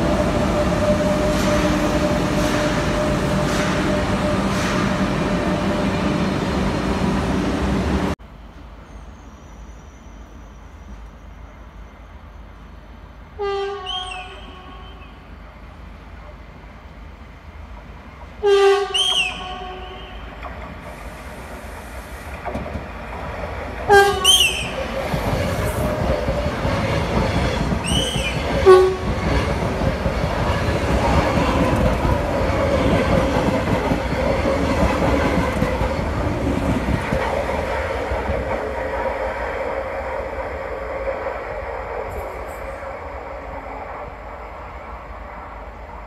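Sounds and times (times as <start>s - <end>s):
continuous train whine: 0.0s - 46.0s
train rumbling past: 0.0s - 46.0s
train horn blasts: 13.4s - 15.2s, 18.4s - 20.3s, 23.9s - 24.8s, 26.8s - 29.6s.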